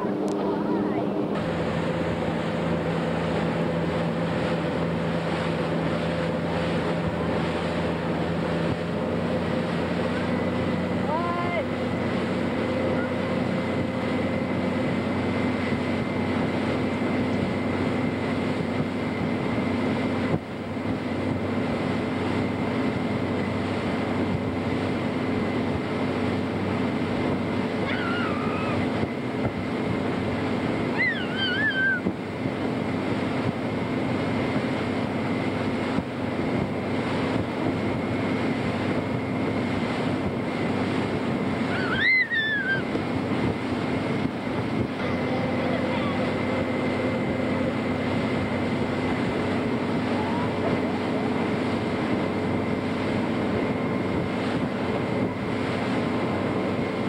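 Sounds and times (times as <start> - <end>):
motorboat engine running: 0.0 - 57.0
rush of wake: 0.0 - 57.0
wind on microphone: 0.0 - 57.0
high-pitched cries: 27.9 - 28.8, 31.0 - 32.1, 41.7 - 42.9.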